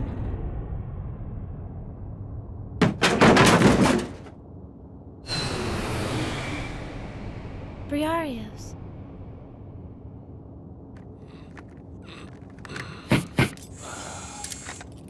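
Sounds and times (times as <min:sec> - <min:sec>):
rumble: 0:00.0 - 0:15.0
sharp knocks and impacts: 0:02.8 - 0:04.4.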